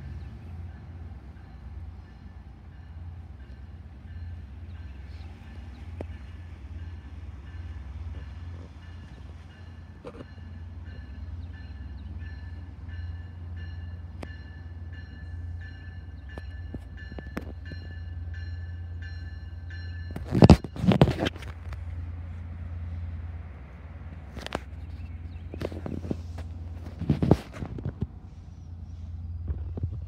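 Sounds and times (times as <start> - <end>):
crossing warning bell ringing: 0.0 - 21.4
train rumble: 0.0 - 30.0.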